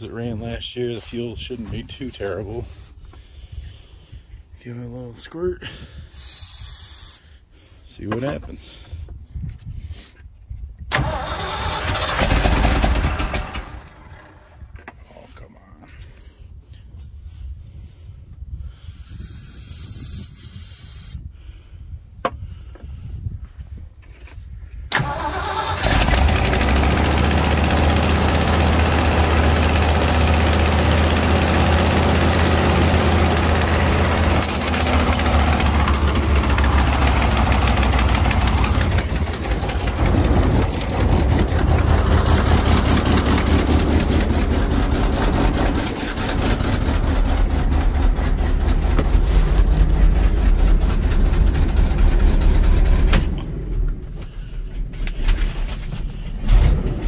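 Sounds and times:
truck engine running: 25.0 - 57.0.

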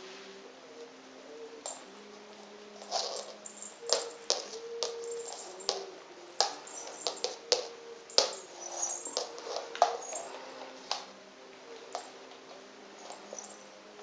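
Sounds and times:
small bells jingling: 1.5 - 11.1, 11.9 - 12.2, 12.9 - 13.8.

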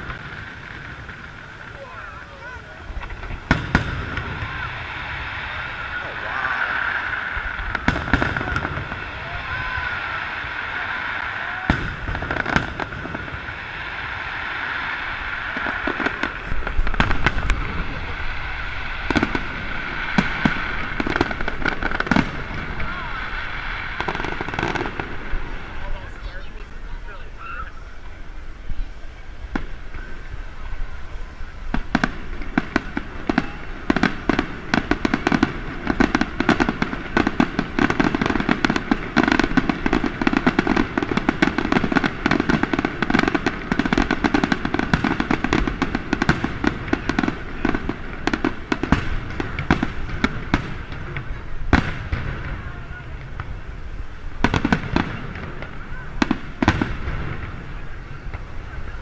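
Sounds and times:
fireworks bangs and crackles: 0.0 - 59.0.

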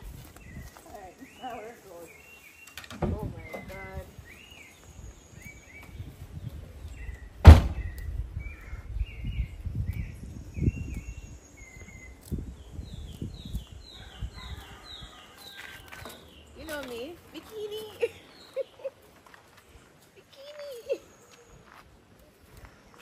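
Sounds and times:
birds chirping: 0.0 - 23.0
car door slamming: 7.4 - 7.9.

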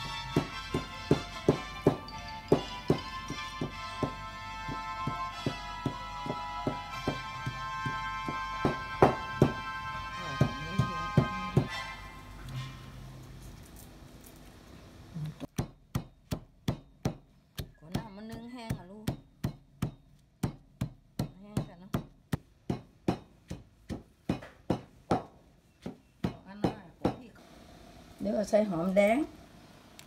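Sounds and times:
pestle pounding in stone mortar: 0.0 - 11.7, 15.5 - 27.3.

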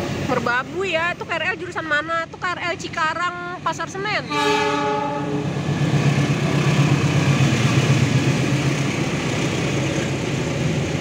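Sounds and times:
diesel locomotive engine drone: 0.0 - 11.0
carriages rolling on rails: 5.6 - 11.0.

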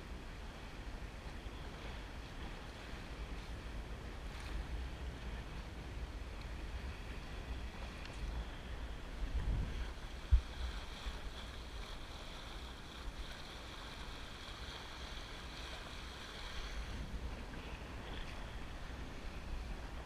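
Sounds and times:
water rushing past hull: 0.0 - 20.0
wind buffeting microphone: 0.0 - 20.0.

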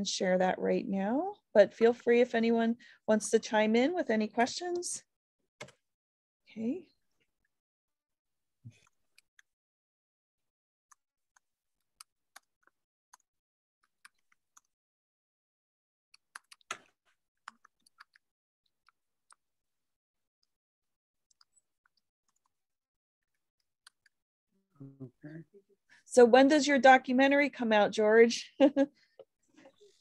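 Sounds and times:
keyboard and mouse clicks: 5.6 - 5.8, 16.2 - 18.2.

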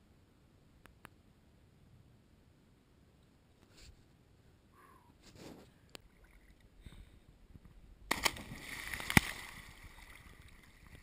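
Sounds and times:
big splash into water: 8.1 - 10.5
water churning: 8.1 - 11.0.

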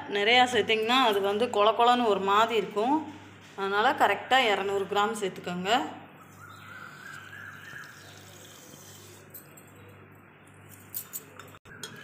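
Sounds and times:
sugar pouring into milk: 7.1 - 9.3.

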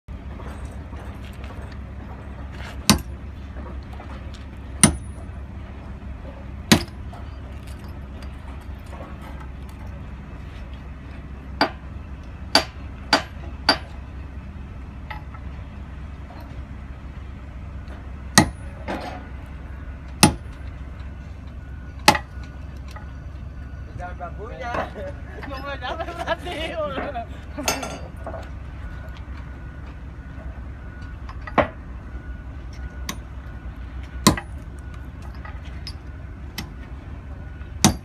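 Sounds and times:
steady low hum: 0.1 - 38.0
hammer striking steel: 2.9 - 3.1, 4.8 - 5.2, 12.5 - 13.9, 18.4 - 19.2, 20.2 - 20.6.

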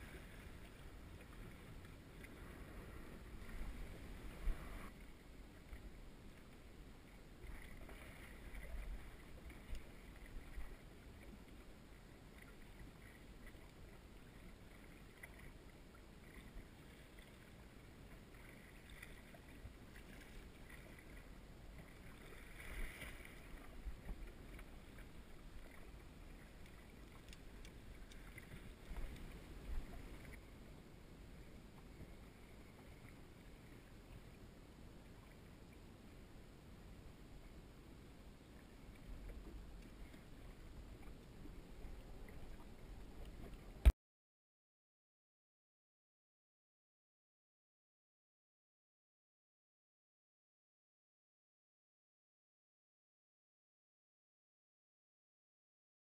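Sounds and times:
wind rumble on microphone: 0.0 - 5.1
water lapping against boat hull: 0.0 - 30.5, 38.6 - 43.9.

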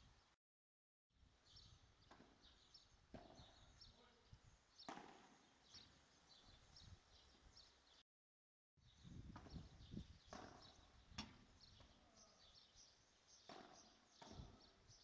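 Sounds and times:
ball popping off rackets and walls: 2.1 - 2.5, 3.1 - 3.6, 4.8 - 5.8, 10.3 - 12.0, 13.4 - 14.8.

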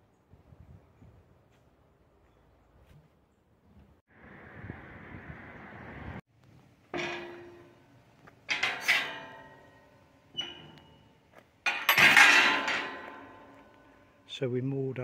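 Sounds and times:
metallic clanks of iron railings: 6.9 - 14.3.

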